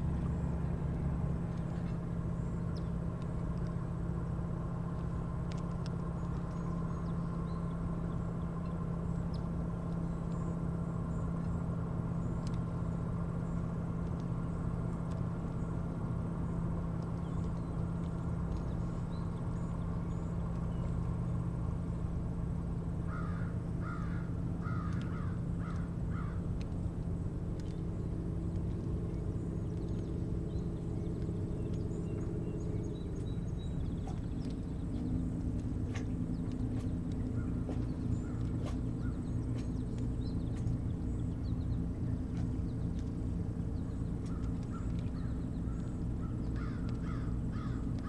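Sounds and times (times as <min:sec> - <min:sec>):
low hum: 0:00.0 - 0:48.0
low motor drone: 0:00.0 - 0:48.0
bird harsh calls: 0:44.3 - 0:47.9.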